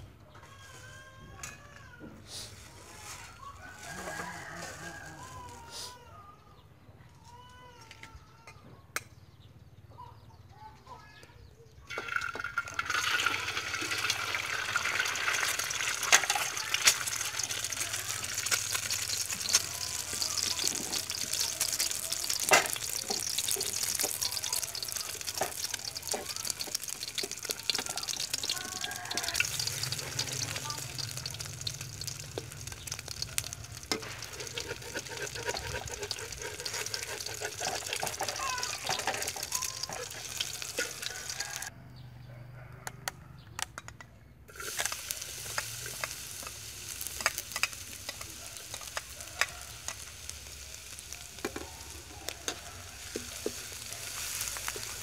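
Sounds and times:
egg sizzling in hot oil: 0:02.9 - 0:05.1, 0:11.9 - 0:41.7, 0:44.5 - 0:55.0
spitting oil pops and crackles: 0:14.8 - 0:41.7, 0:44.5 - 0:55.0.

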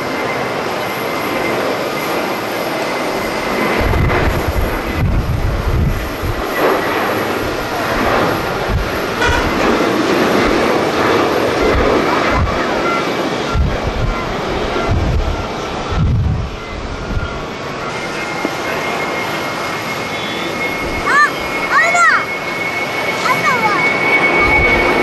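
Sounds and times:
jet engines at takeoff power: 0:00.0 - 0:25.0
wind buffeting microphone: 0:02.7 - 0:18.8, 0:23.9 - 0:25.0.

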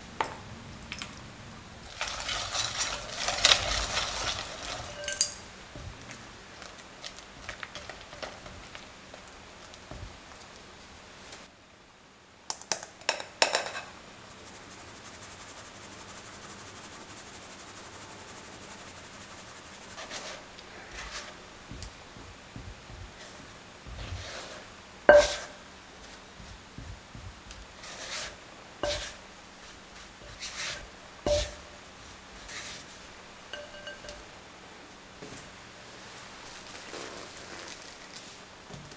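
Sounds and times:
spatula scraping dough: 0:01.8 - 0:05.1, 0:18.6 - 0:33.0
sieve rattling over a glass bowl: 0:01.9 - 0:05.4
clinks and knocks: 0:02.0 - 0:06.0, 0:33.5 - 0:34.2
spatula knocking glass bowl: 0:25.1 - 0:25.6, 0:31.3 - 0:31.6, 0:33.6 - 0:34.2.

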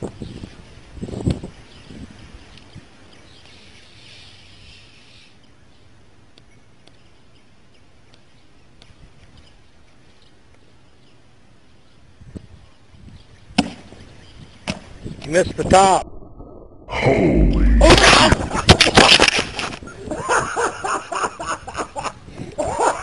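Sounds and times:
soft high hiss: 0:00.0 - 0:16.0.

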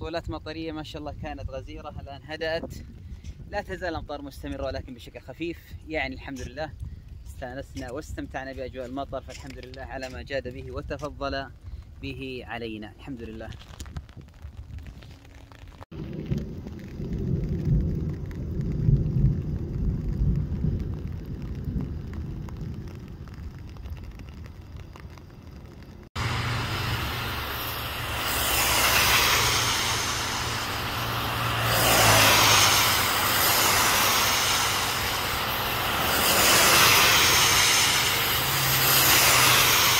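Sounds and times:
cars passing on wet road: 0:22.0 - 0:39.9.

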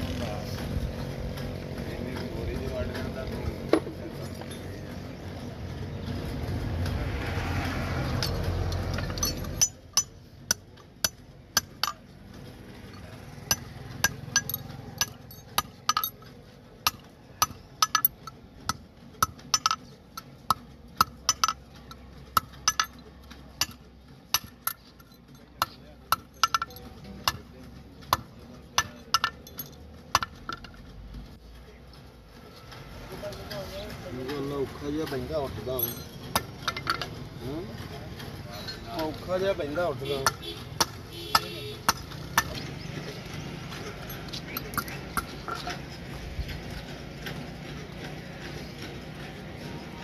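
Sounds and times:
hammer striking metal on anvil: 0:08.2 - 0:12.1, 0:13.5 - 0:16.2, 0:16.8 - 0:21.6, 0:22.3 - 0:23.0, 0:23.6 - 0:24.8.

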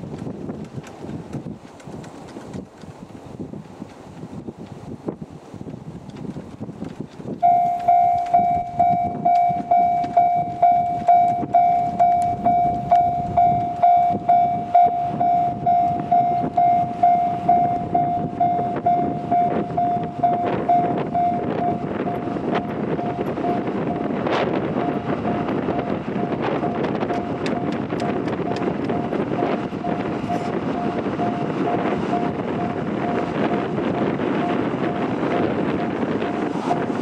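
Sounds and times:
diesel train rumble: 0:00.0 - 0:37.0
level crossing warning bell: 0:07.4 - 0:27.8, 0:28.4 - 0:33.4.

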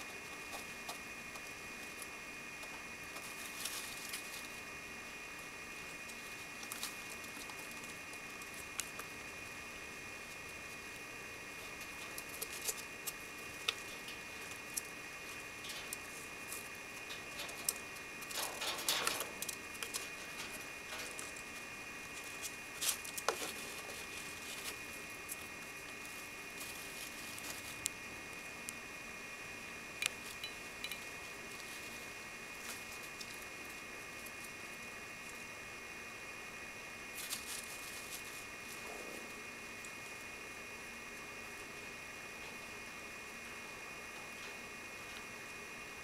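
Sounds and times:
rats scrabbling in wire cage: 0:00.0 - 0:04.7, 0:05.4 - 0:27.9, 0:37.1 - 0:40.2.

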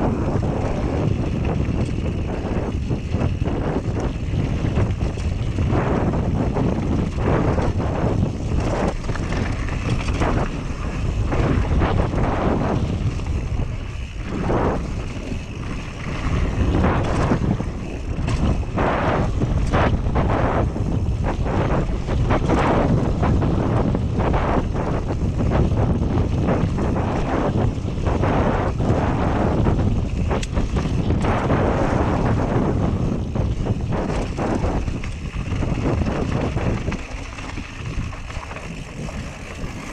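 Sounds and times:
bike knocks and rattles: 0:00.0 - 0:39.9
wind buffeting microphone: 0:00.0 - 0:39.9
tyres crunching on gravel: 0:30.2 - 0:39.9.

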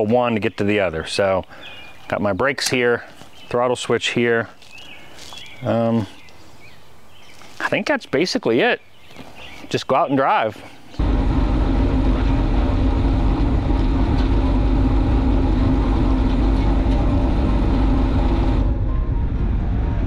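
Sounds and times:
bike road noise rumble: 0:11.0 - 0:20.0
wind buffeting microphone: 0:11.0 - 0:20.0.

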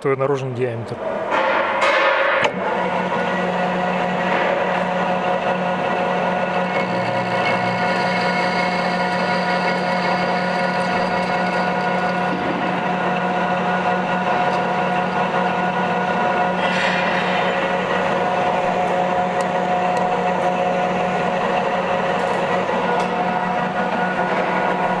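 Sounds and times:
metal lathe humming and whining: 0:02.5 - 0:25.0
turning tool cutting metal bar: 0:06.3 - 0:13.2.

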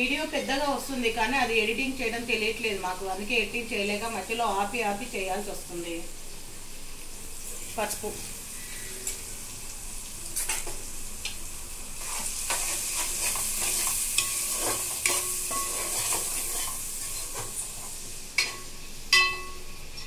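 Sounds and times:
vegetables sizzling in hot oil: 0:00.0 - 0:19.2
metal spoon scraping pot: 0:13.0 - 0:17.4.

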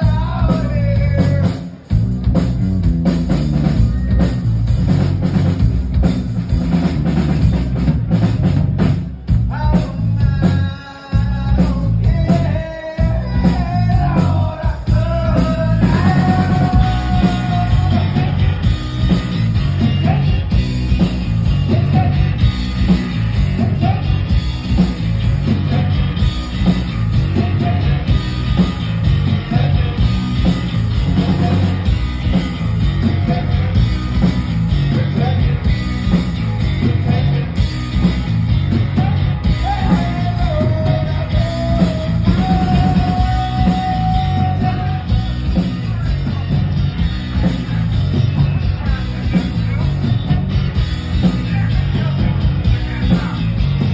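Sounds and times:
man singing: 0:00.0 - 0:01.8, 0:09.3 - 0:32.0, 0:32.9 - 0:46.7, 0:51.0 - 0:53.9
bass guitar: 0:00.0 - 0:53.9
drums: 0:00.0 - 0:53.9
electric guitar: 0:00.0 - 0:53.9.

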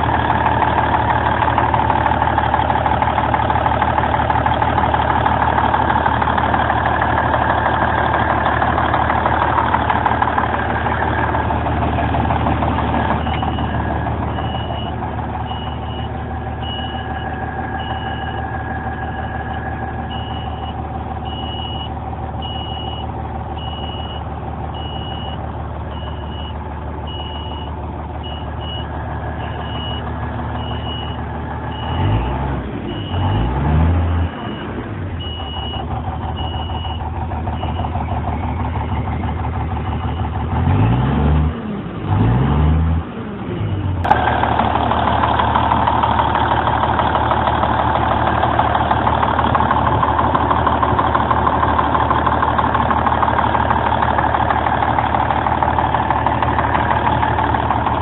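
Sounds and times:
diesel truck engine idling and revving: 0:00.0 - 0:58.0
high beeps: 0:13.2 - 0:24.2, 0:24.8 - 0:32.2, 0:34.1 - 0:37.0.

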